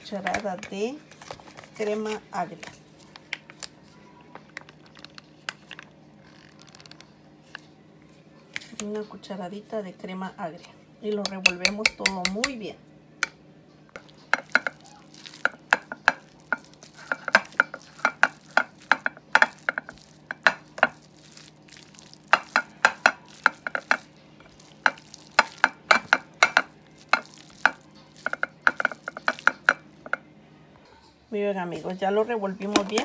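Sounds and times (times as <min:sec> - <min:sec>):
spatula stirring wet salad: 0:13.9 - 0:30.2.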